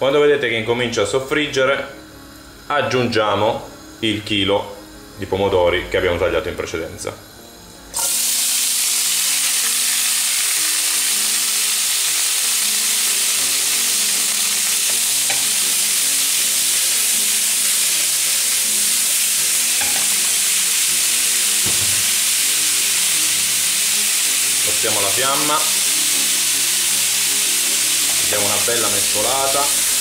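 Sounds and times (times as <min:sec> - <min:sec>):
tomatoes sizzling in hot oil: 0:07.0 - 0:30.0.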